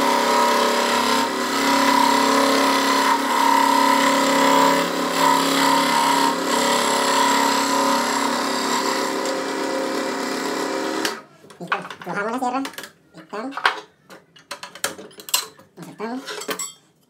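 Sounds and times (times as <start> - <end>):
saw motor hum: 0.0 - 11.2.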